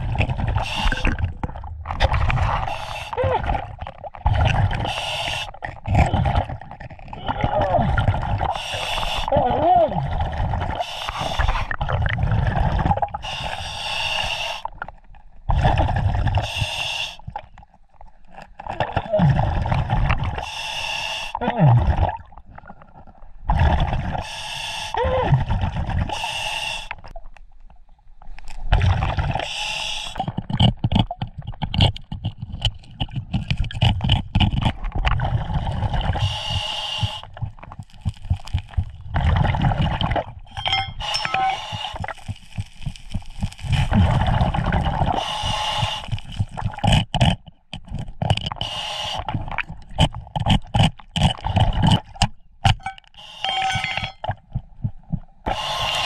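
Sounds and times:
exhaled bubbles rumbling: 0.0 - 13.4, 14.7 - 16.6, 18.4 - 20.4, 21.4 - 24.2, 25.0 - 26.2, 28.6 - 29.4, 30.2 - 48.6
scuba regulator inhalations: 0.5 - 1.2, 2.3 - 3.6, 4.6 - 5.6, 8.4 - 9.4, 10.3 - 11.8, 13.2 - 14.8, 16.3 - 17.3, 20.4 - 21.4, 24.1 - 25.0, 26.0 - 27.1, 29.4 - 30.4, 36.0 - 38.4, 40.5 - 46.9, 48.5 - 49.4, 53.0 - 54.2, 55.4 - 56.0
stones clicking and scraping: 30.3 - 35.2, 37.6 - 39.1, 40.5 - 44.0.

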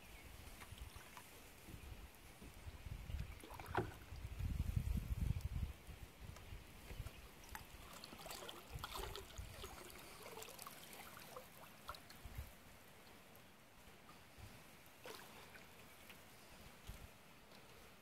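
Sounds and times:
small clicks and splashes: 0.6 - 1.7, 3.1 - 4.4, 6.3 - 12.4
water trickling and dripping: 0.6 - 5.6, 6.2 - 13.4.

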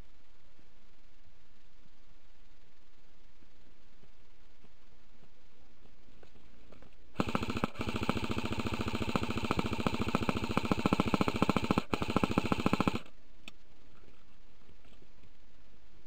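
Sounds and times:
airsoft rifle firing full auto: 7.2 - 13.1.

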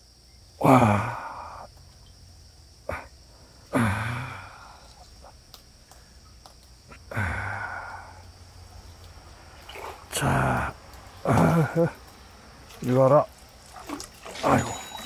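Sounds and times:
man grunting with effort: 0.6 - 1.6, 3.7 - 4.6, 10.2 - 12.0.

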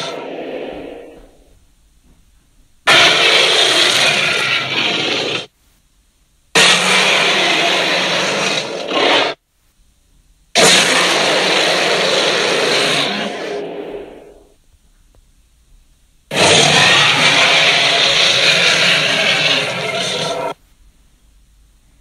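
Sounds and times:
monster roar: 0.0 - 1.2, 2.9 - 5.5, 6.6 - 9.4, 10.6 - 14.4, 16.3 - 20.6.

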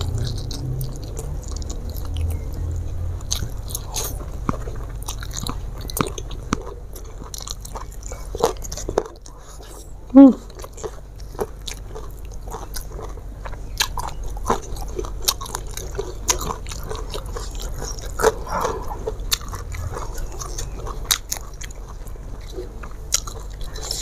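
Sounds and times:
person chewing: 0.0 - 24.0
steady low hum: 0.0 - 24.0.

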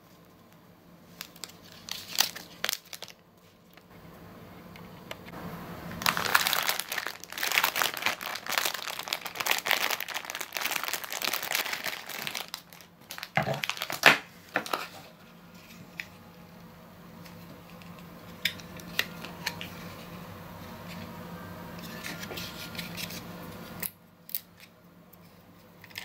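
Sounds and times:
plastic bag crinkling: 1.1 - 3.9, 5.9 - 15.0.

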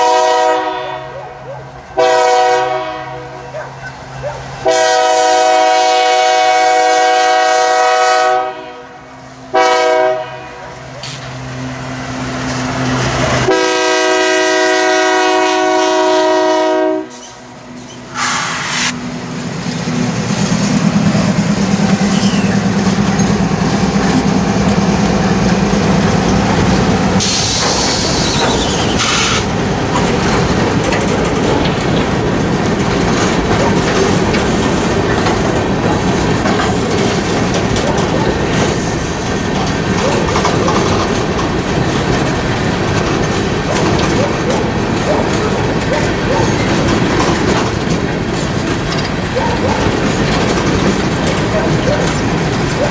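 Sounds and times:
locomotive horn blast: 0.0 - 1.2, 2.0 - 3.5, 4.6 - 10.8, 13.4 - 17.4
locomotive engines droning: 0.0 - 52.9
train cars clacking over rails: 0.0 - 52.9
wheel squeal: 22.0 - 23.4, 27.4 - 29.5.

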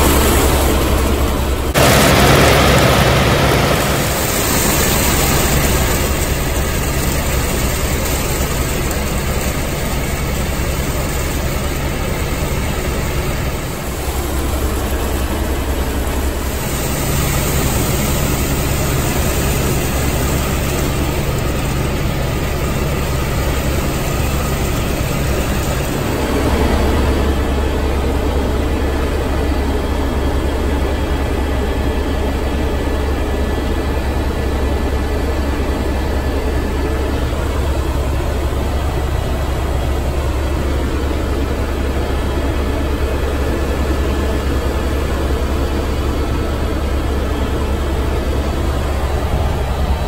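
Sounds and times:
helicopter turbine and rotor drone: 0.0 - 50.0.

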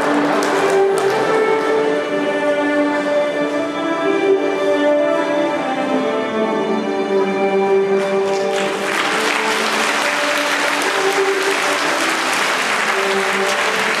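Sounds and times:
audience applauding: 0.0 - 2.0, 8.1 - 14.0
music with held tones: 0.0 - 14.0.

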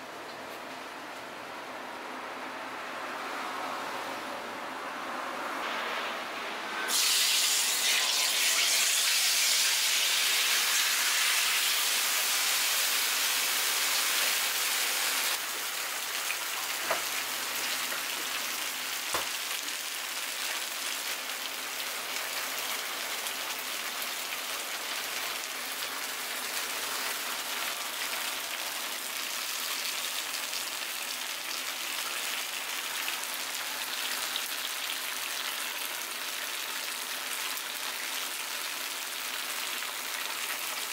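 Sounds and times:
batter sizzling in a hot pan: 6.9 - 40.9.

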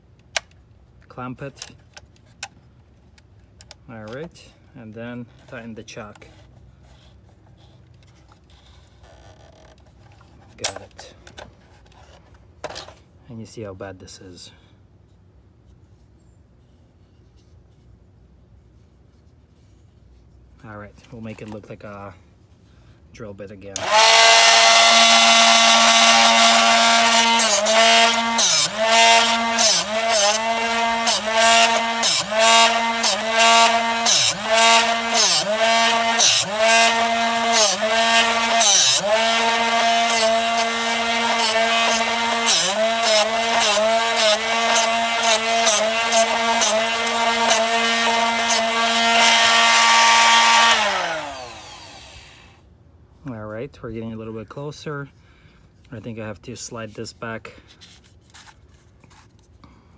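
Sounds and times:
drill bit grinding: 23.8 - 52.6
sharpener motor humming: 23.8 - 52.6.

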